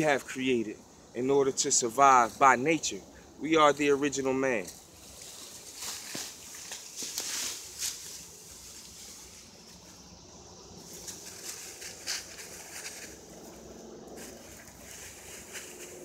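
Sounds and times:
leafy branches rustling and dragging: 4.8s - 10.0s, 10.8s - 16.0s
branches swishing: 4.9s - 9.5s, 10.8s - 13.6s, 14.2s - 16.0s.

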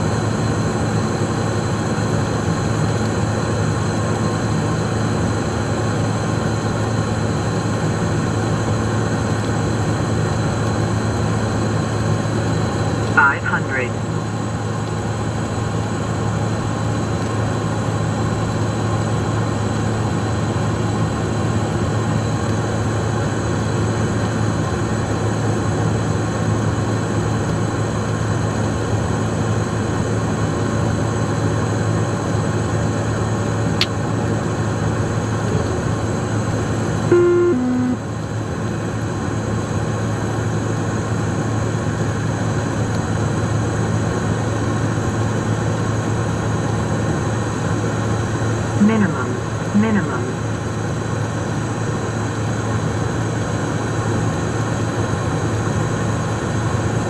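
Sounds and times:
jet engine cockpit drone: 0.0s - 57.0s
two-note falling tone: 37.1s - 38.0s.

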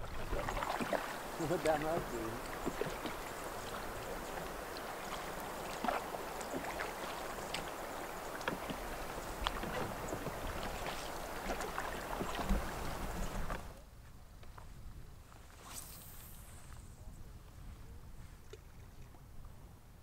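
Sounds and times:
small splashes and drips: 0.0s - 13.6s
river water gurgling against canoe: 0.0s - 13.8s.

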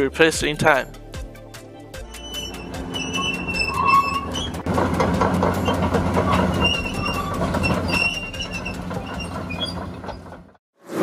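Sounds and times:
diesel engine hum: 0.9s - 10.6s
track links squealing: 2.0s - 10.6s
steel tracks clanking: 2.1s - 10.6s.

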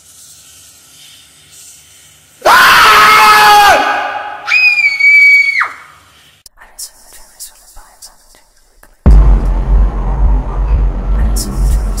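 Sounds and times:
faint hiss: 0.0s - 2.5s, 5.8s - 9.0s
loud scream: 2.4s - 6.0s.

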